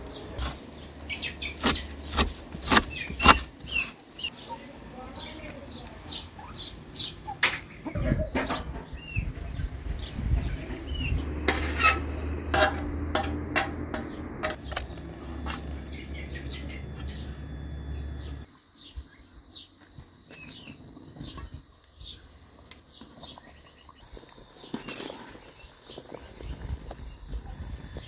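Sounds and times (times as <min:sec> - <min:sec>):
small birds chirping: 0:00.0 - 0:11.2, 0:14.0 - 0:28.0
low steady hum: 0:09.8 - 0:24.0
utensil scraping frying pan: 0:11.4 - 0:15.7.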